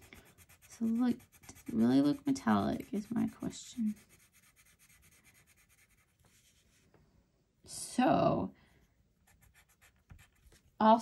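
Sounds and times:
person speaking: 0:00.0 - 0:04.2
pencil scribbling on paper: 0:00.0 - 0:06.5, 0:09.3 - 0:10.4.

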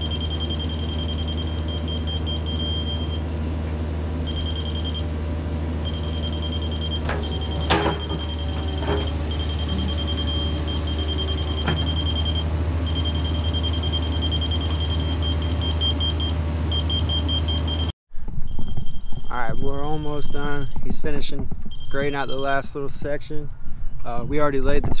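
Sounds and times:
warning alarm beeping: 0:00.0 - 0:03.3, 0:04.2 - 0:05.1, 0:05.8 - 0:20.9, 0:21.7 - 0:22.6
excavator diesel engine running: 0:00.0 - 0:17.9
metal clanks: 0:07.0 - 0:11.9.

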